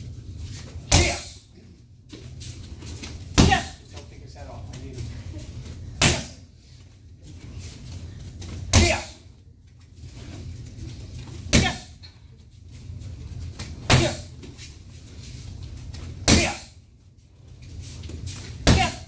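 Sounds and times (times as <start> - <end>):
strikes smacking kick shield: 0.9 - 1.4, 3.4 - 3.8, 6.0 - 6.4, 8.7 - 9.2, 11.5 - 11.9, 13.9 - 14.3, 16.2 - 16.7, 18.6 - 19.0.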